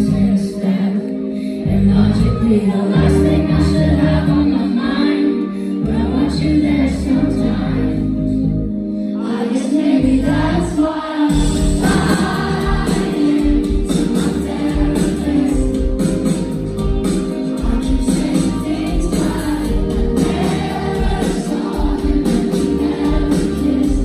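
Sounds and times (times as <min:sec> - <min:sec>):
guitar chords: 0:00.0 - 0:24.0
person singing: 0:09.1 - 0:24.0.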